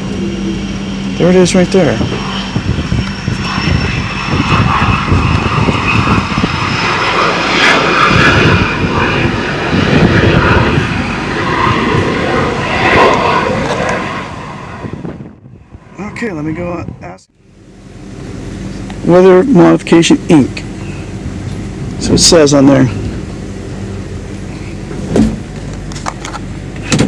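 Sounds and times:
aircraft engine running: 0:00.0 - 0:27.0.

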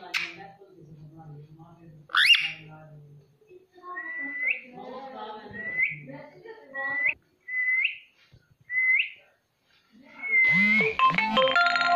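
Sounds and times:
parakeet whistling: 0:02.1 - 0:02.7, 0:03.9 - 0:04.7, 0:05.5 - 0:06.1, 0:06.7 - 0:08.1, 0:08.7 - 0:09.2, 0:10.2 - 0:11.0.

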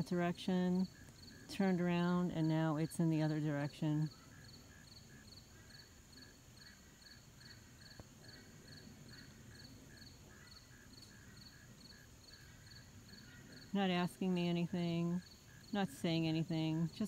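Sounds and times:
high insect chirp: 0:00.0 - 0:17.0.

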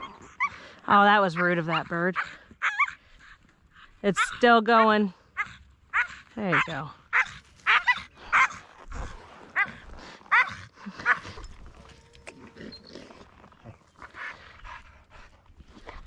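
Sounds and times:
dog yelping: 0:00.0 - 0:00.6, 0:01.3 - 0:03.4, 0:04.2 - 0:08.6, 0:09.6 - 0:12.9.

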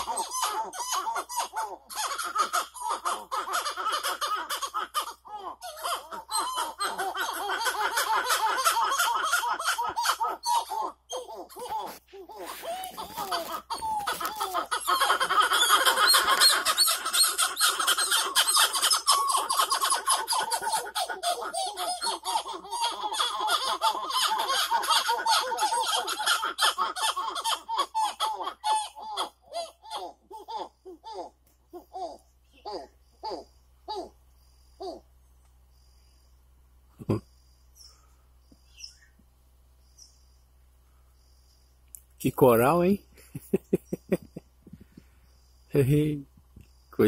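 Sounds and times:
monkeys whooping in chorus: 0:00.0 - 0:35.1.

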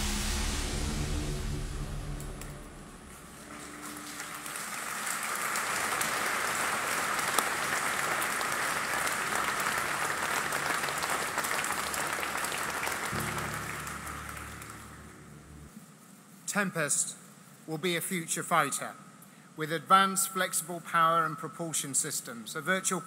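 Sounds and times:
audience applauding: 0:02.4 - 0:15.7.

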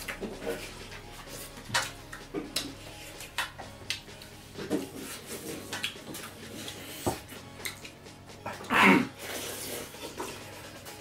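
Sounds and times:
chewing and mouth smacks: 0:05.7 - 0:06.8, 0:07.6 - 0:08.0.

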